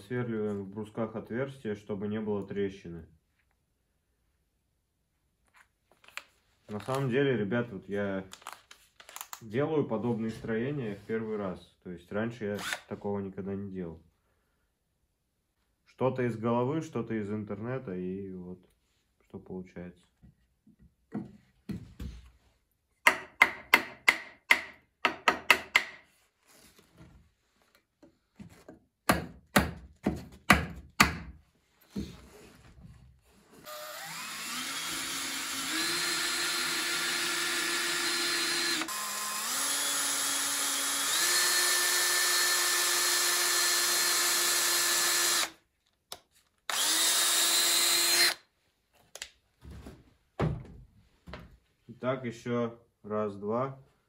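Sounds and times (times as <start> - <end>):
cordless drill motor whine: 12.6 - 12.8, 33.6 - 45.5, 46.7 - 48.4.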